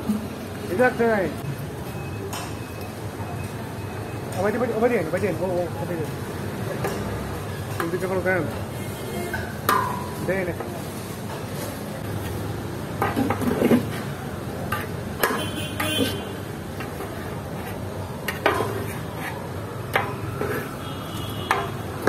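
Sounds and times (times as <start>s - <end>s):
metal ladle clanking in a pot: 19.9s - 20.7s.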